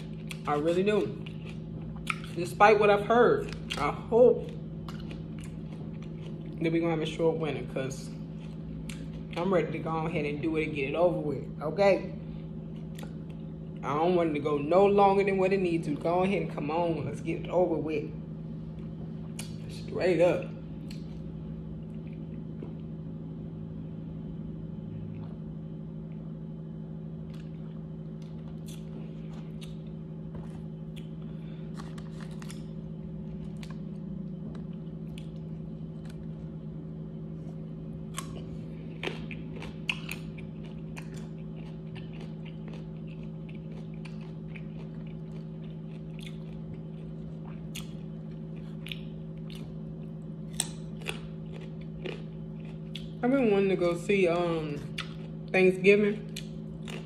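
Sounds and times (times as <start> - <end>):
person chewing and biting: 0.0 - 2.6, 3.4 - 6.6, 8.2 - 9.4, 27.1 - 53.2, 54.8 - 55.5, 56.3 - 57.0
steady low hum: 0.0 - 57.0.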